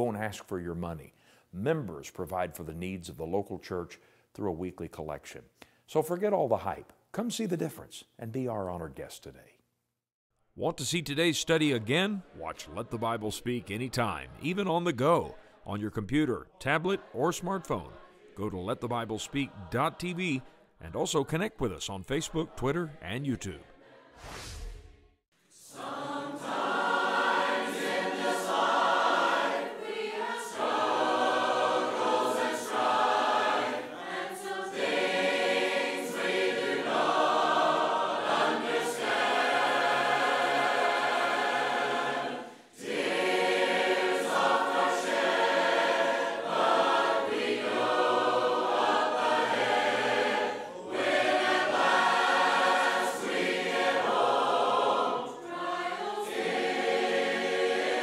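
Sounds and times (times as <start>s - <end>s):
congregation singing a hymn: 11.6s - 21.5s, 22.1s - 24.2s, 25.5s - 58.0s.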